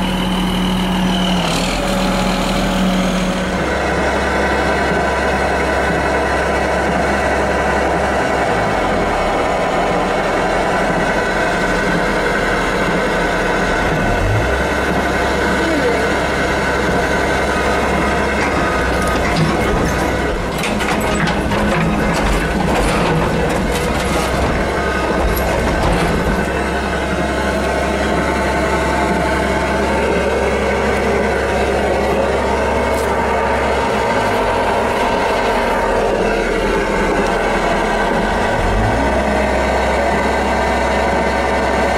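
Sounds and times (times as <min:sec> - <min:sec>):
diesel engine running: 0:00.0 - 0:41.9.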